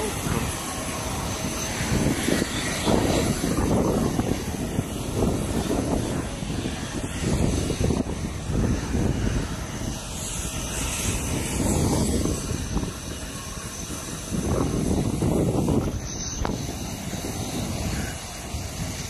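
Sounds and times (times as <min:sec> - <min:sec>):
high whine: 0:00.0 - 0:19.0
jet aircraft noise: 0:00.0 - 0:19.0.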